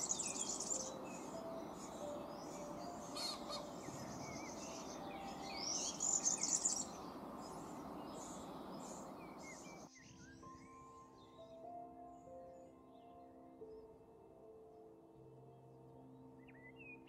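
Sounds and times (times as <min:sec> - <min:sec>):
small birds chirping: 0:00.0 - 0:10.4
soft background music: 0:00.0 - 0:17.0.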